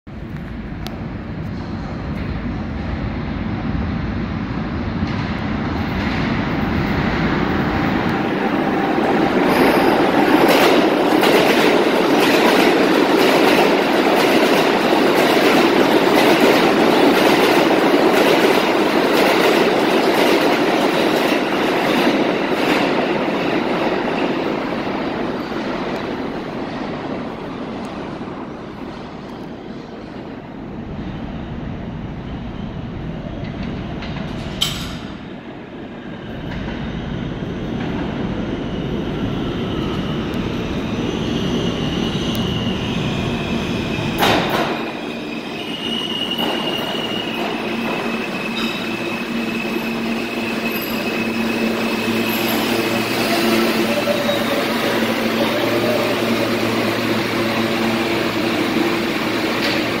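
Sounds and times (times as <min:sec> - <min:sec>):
train wheels rumbling on track: 0:00.1 - 1:00.0
sharp clack of train wheels: 0:33.4 - 0:35.2, 0:44.1 - 0:45.2, 0:46.0 - 0:53.6, 0:56.9 - 1:00.0
wheels and brakes squealing: 0:40.7 - 0:58.7.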